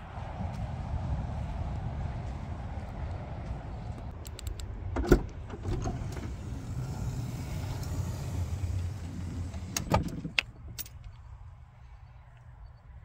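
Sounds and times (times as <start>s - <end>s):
steady low rumble: 0.0s - 13.0s
car door shutting: 5.0s - 10.4s.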